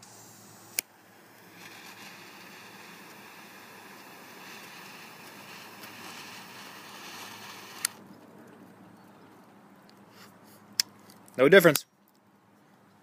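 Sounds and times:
jet lighter hissing: 0.0 - 8.0.

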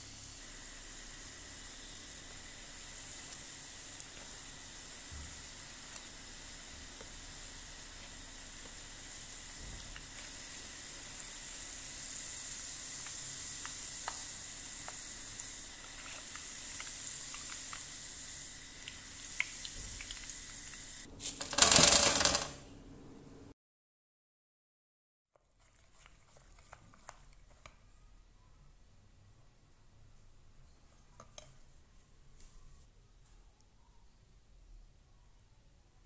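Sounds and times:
dough deep-frying in hot oil: 0.0 - 22.3.

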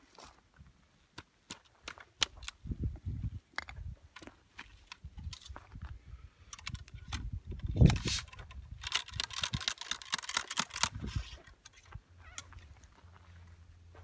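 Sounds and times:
ramrod clicks and scrapes: 3.6 - 5.6, 6.5 - 12.7.

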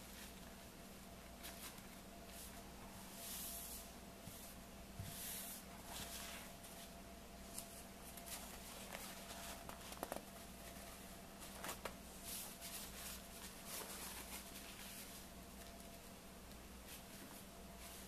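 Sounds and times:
faint steady hum: 0.0 - 18.0
paper napkins rustling: 5.2 - 18.0
sharp paper crackles: 8.3 - 10.3.

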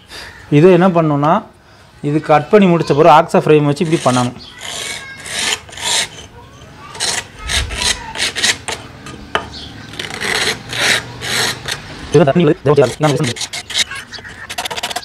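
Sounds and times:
hacksaw blade rasping on block: 3.8 - 6.3, 6.9 - 11.8, 12.8 - 15.0.

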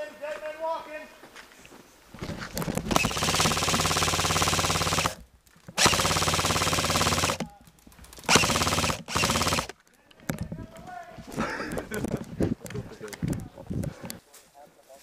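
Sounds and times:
airsoft rifle rapid shots: 2.9 - 5.2, 5.8 - 7.5, 8.2 - 9.7.

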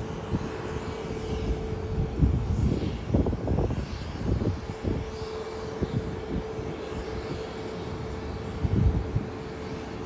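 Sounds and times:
jet engines rumbling: 0.0 - 10.0.

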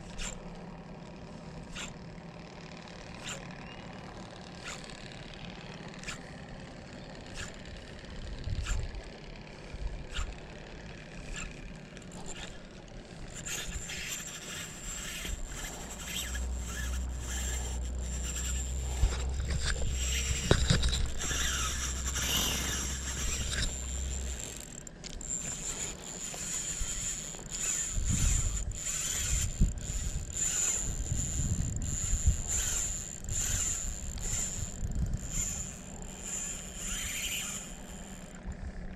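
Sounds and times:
fishing reel ticking and whirring: 0.0 - 38.9
wind rumbling on microphone: 8.2 - 9.0, 27.7 - 35.5.

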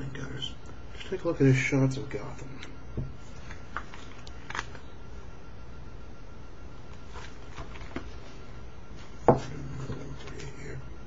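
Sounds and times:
pages rustling: 3.3 - 4.9, 6.9 - 8.4.

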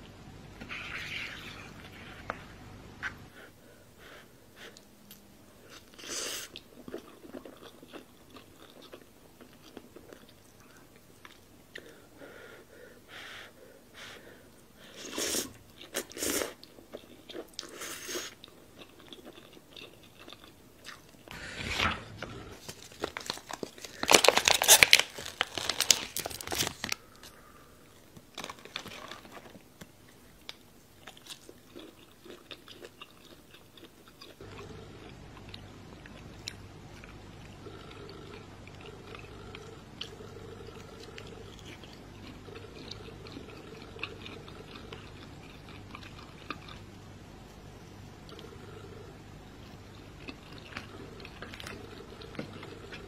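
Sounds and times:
crunchy biting and chewing: 31.0 - 46.9.

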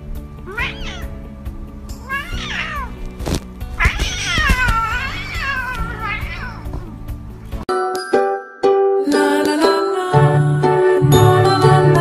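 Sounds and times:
background music: 0.0 - 12.0
cat meowing: 0.4 - 1.3, 2.0 - 3.1, 3.8 - 7.0.

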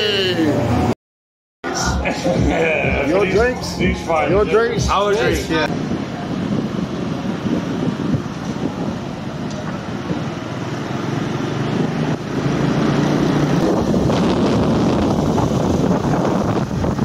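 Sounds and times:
road noise: 0.0 - 1.0, 1.6 - 17.0
wind on microphone: 5.6 - 10.6, 11.6 - 17.0
scooter engines: 5.7 - 17.0.

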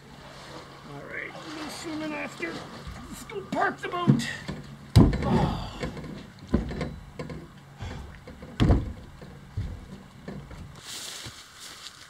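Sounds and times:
thumps and knocks on boat hull: 4.0 - 10.7.

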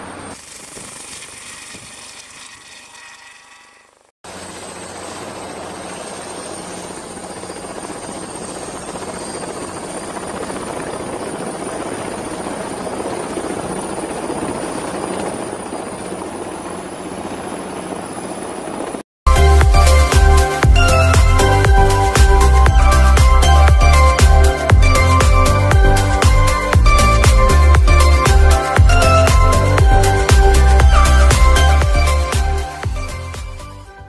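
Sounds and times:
aircraft sound: 3.9 - 34.0
helicopter rotor and engine rumble: 4.3 - 34.0
high whine: 19.3 - 33.8.

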